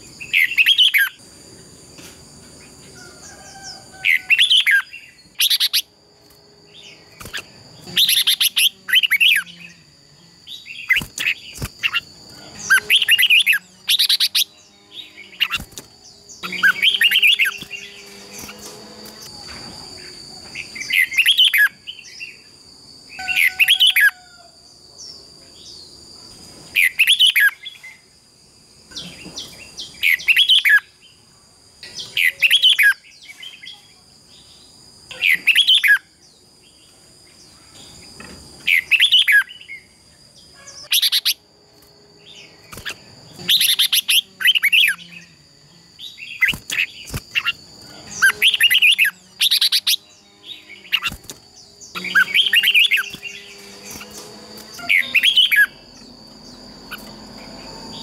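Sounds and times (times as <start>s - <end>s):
bird singing warbled phrases: 0.0s - 1.2s, 4.0s - 5.9s, 6.7s - 19.2s, 20.0s - 22.5s, 26.8s - 28.0s, 28.9s - 31.2s, 31.8s - 41.4s, 42.2s - 57.1s
steady high-pitched whine: 0.0s - 58.0s.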